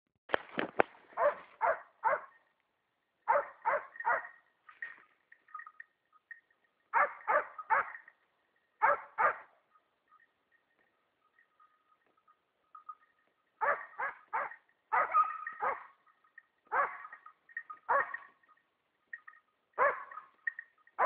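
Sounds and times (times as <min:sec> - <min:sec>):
dog barking: 0:01.2 - 0:02.3, 0:03.3 - 0:04.4, 0:06.9 - 0:08.0, 0:08.8 - 0:09.5, 0:13.6 - 0:16.0, 0:16.7 - 0:17.3, 0:17.9 - 0:18.3, 0:19.8 - 0:20.3.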